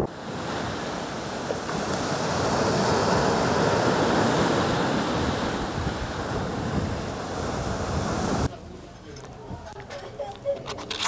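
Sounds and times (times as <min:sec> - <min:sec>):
waves washing over pebble beach: 0:00.0 - 0:08.5.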